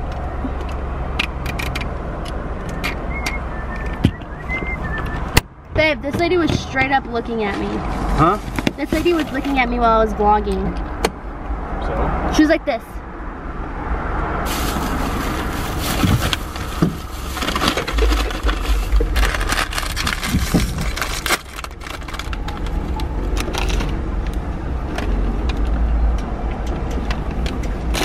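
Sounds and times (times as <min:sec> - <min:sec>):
paper and plastic bags rustling: 0:08.3 - 0:09.6, 0:14.4 - 0:23.9
low rumble: 0:13.0 - 0:26.5.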